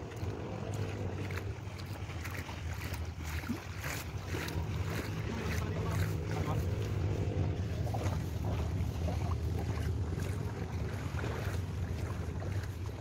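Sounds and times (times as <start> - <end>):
splashes of wading in water: 0.0 - 13.0
wind rumble on microphone: 0.0 - 13.0.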